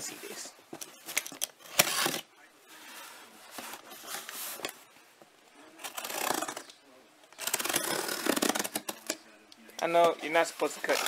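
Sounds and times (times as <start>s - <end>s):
blade slitting packing tape: 7.4s - 9.0s.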